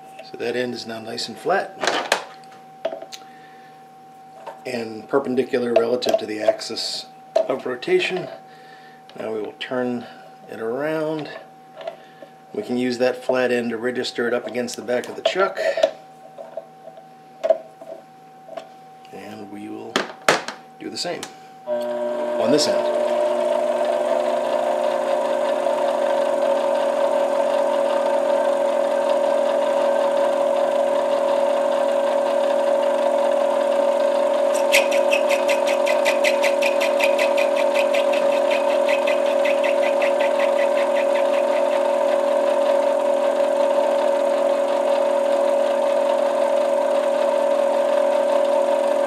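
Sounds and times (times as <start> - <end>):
metal lathe motor and gear whine: 4.3 - 8.5, 9.1 - 16.9, 21.7 - 49.0
cutting tool ticking on acrylic: 34.5 - 41.8.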